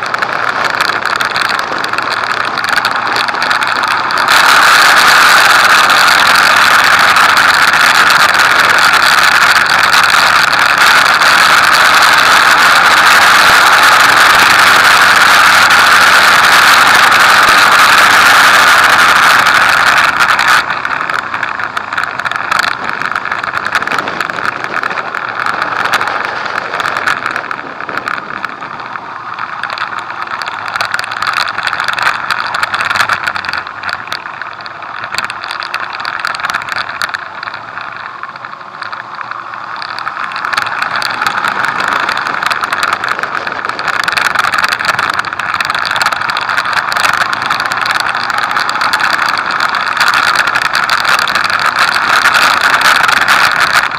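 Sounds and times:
motorcycle engine running: 0.0 - 53.9.

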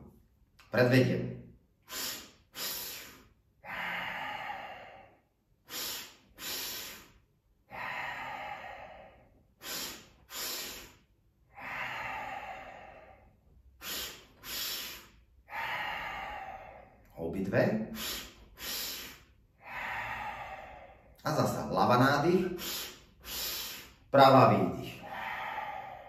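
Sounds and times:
man sniffing sharply: 1.7 - 17.1, 17.8 - 21.2, 22.4 - 24.1
man exhaling: 1.7 - 17.2, 17.8 - 21.2, 22.4 - 24.1, 24.7 - 26.0.

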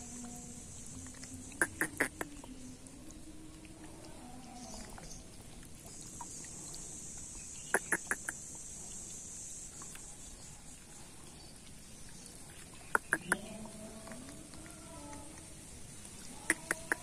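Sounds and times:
short sharp animal calls: 1.6 - 2.3, 7.7 - 8.4, 12.9 - 13.4, 16.4 - 17.0.

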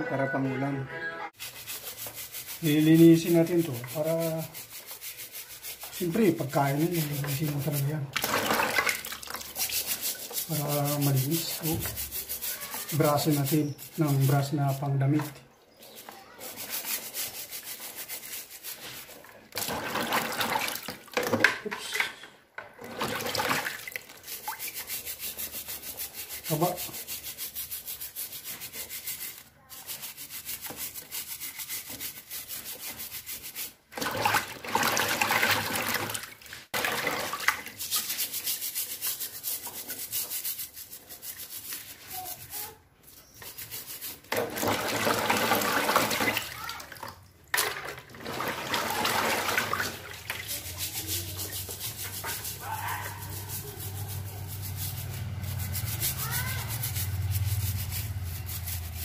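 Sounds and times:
sponge scrubbing crab shells: 1.4 - 21.2, 22.9 - 59.0
water splashing: 6.9 - 13.4, 44.3 - 58.9.

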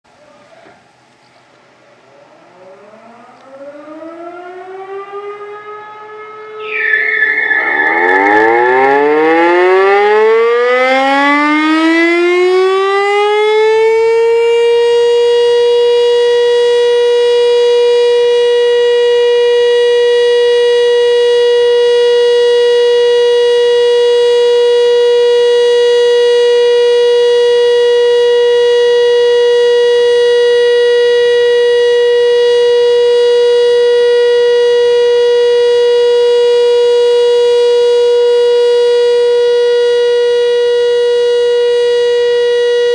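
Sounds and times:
rotor siren winding up: 2.9 - 12.8.

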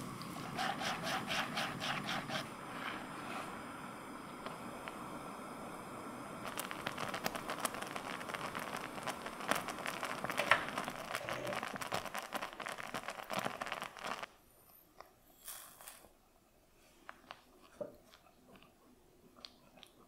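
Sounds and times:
thick sauce bubbling and popping: 6.4 - 14.3, 17.0 - 20.0.

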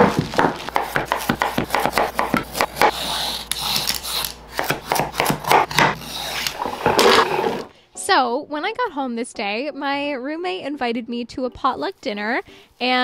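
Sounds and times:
scraping and tapping on cutting board: 0.0 - 7.7.

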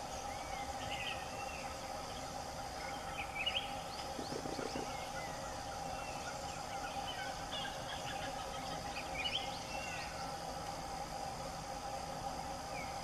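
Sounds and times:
insect drone: 0.0 - 13.0
low clucks: 4.0 - 5.0.

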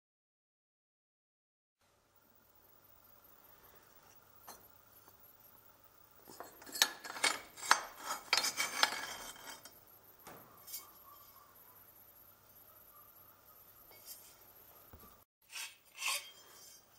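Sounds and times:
steel tubes clinking: 6.2 - 9.8.

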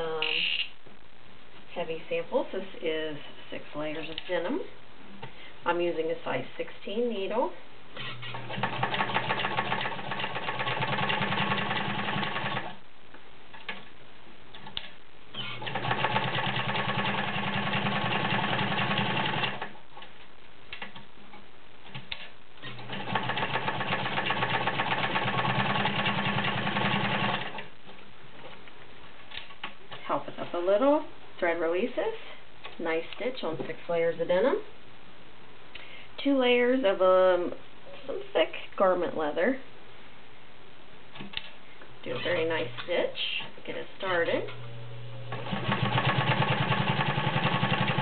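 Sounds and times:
sewing machine stitching: 8.0 - 12.7, 15.4 - 19.7, 22.6 - 27.7, 45.3 - 48.0.

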